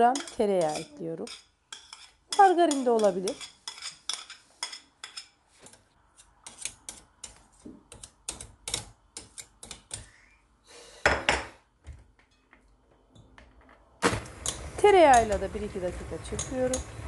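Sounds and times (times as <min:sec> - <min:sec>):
spoon scraping a plate: 0:00.2 - 0:05.4.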